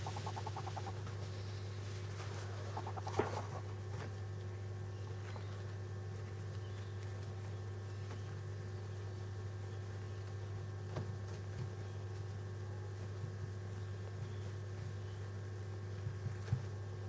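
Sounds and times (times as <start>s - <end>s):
parrot chicks chattering: 0.0s - 1.1s, 2.4s - 3.8s
steady low hum: 0.0s - 17.0s.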